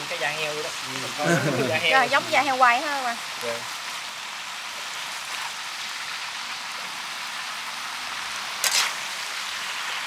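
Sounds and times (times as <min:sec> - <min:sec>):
food sizzling in hot pan: 0:00.0 - 0:10.0.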